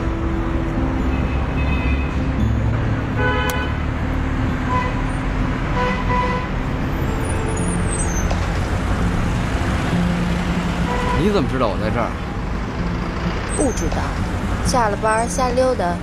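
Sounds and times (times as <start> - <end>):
bus driving past: 0.0 - 16.0
street traffic: 0.0 - 16.0
car horn toot: 3.2 - 3.8, 4.7 - 5.0, 5.8 - 6.5, 10.9 - 11.5.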